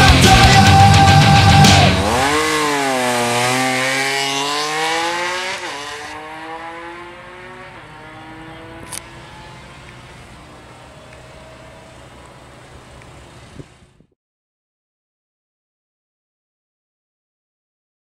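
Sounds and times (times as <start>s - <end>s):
motorcycle accelerating: 0.0s - 14.1s.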